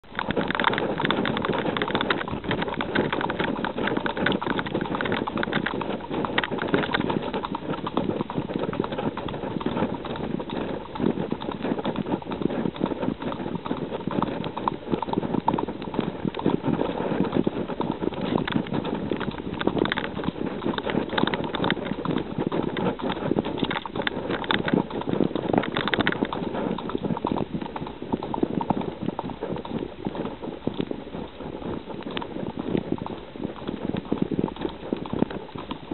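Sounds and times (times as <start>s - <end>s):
horse hoofbeats on dirt: 0.0s - 35.9s.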